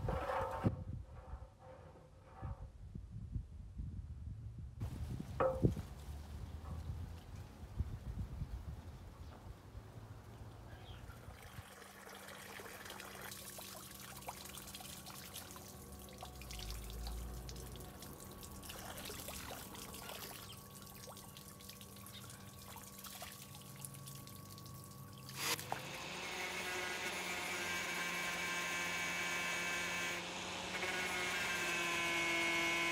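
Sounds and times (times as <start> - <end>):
hose water pouring and splashing: 11.3 - 26.1
water splashing on concrete: 11.6 - 22.0.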